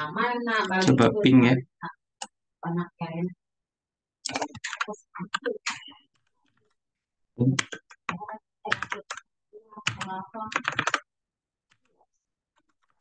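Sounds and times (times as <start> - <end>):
typing on computer keyboard: 4.3 - 5.8, 7.4 - 11.1.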